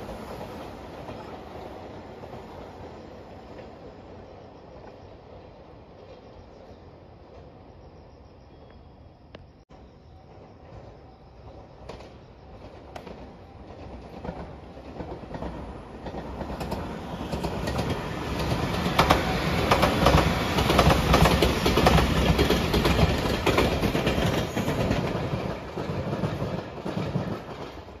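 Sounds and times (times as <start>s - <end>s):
train wheels clacking over joints: 11.8s - 28.0s.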